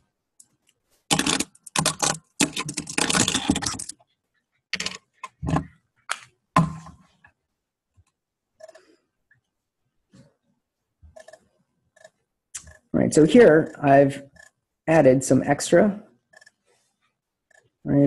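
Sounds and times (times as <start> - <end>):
typing on a keyboard: 1.1 - 4.0.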